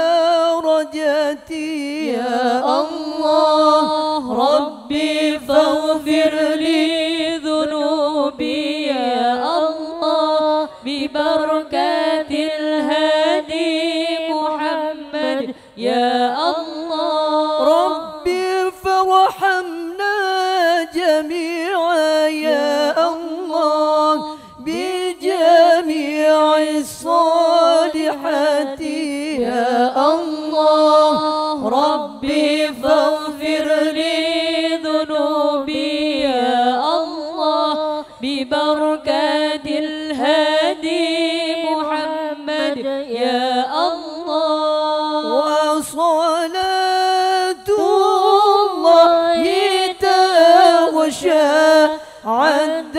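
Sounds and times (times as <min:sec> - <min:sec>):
women chanting devotional verse: 0:00.0 - 0:52.9.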